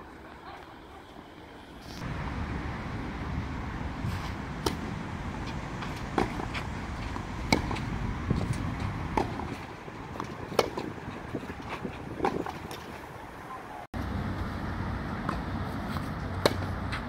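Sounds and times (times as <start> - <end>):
racket striking tennis ball: 4.1 - 12.9, 15.2 - 17.0
tennis ball bouncing: 4.6 - 12.9, 15.2 - 17.0.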